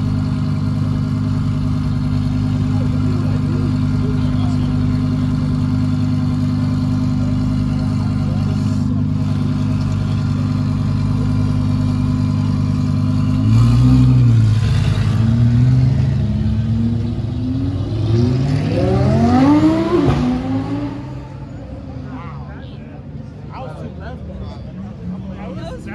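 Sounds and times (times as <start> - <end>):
car engine idling: 0.0 - 18.2.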